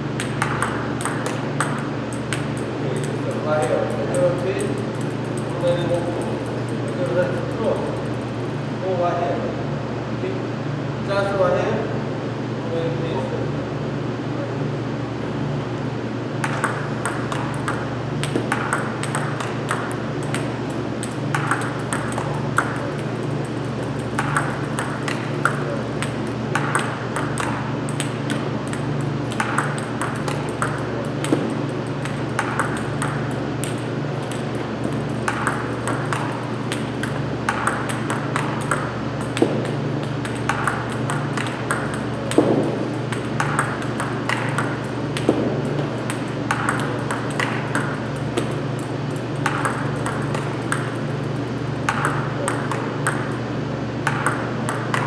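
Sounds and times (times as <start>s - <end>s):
table tennis ball clicks: 0.2s - 7.7s, 16.4s - 51.0s, 51.8s - 53.4s, 54.0s - 55.0s
low hum: 14.4s - 55.0s.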